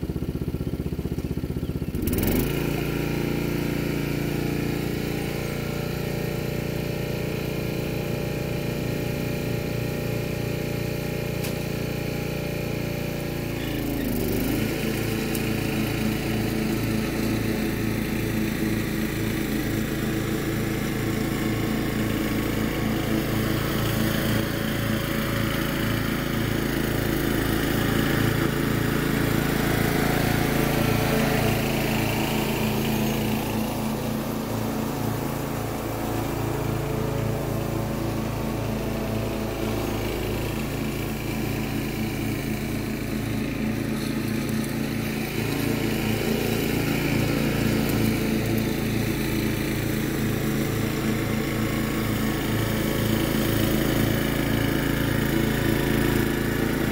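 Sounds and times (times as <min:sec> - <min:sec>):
riding lawn mower cutting grass: 0:00.0 - 0:56.9.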